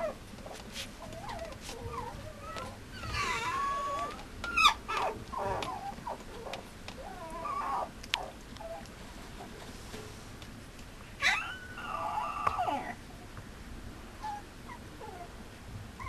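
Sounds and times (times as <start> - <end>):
puppy whining: 0.0 - 8.9, 11.2 - 13.0, 14.2 - 15.3.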